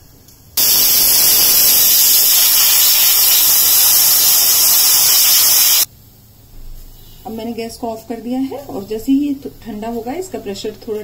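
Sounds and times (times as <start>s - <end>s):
pressure cooker whistle hissing: 0.6s - 5.9s.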